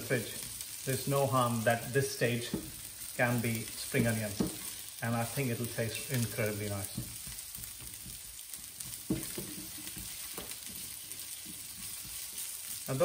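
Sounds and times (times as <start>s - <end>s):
vegetables sizzling in a pan: 0.0s - 13.0s
spatula knocking against pan: 8.8s - 10.8s.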